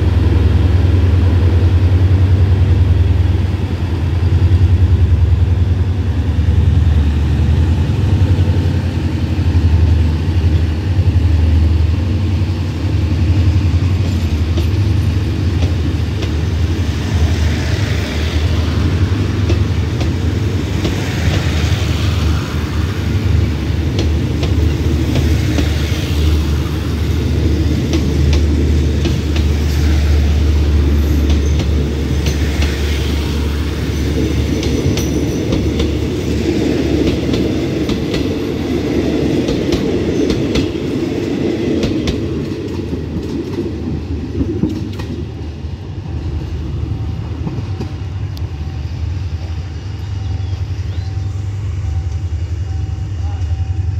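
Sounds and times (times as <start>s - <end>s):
wheel-on-rail rushing noise: 0.0s - 52.1s
low steady train drone: 0.0s - 53.9s
wheels clicking over rail joints: 27.8s - 32.9s, 36.9s - 45.3s.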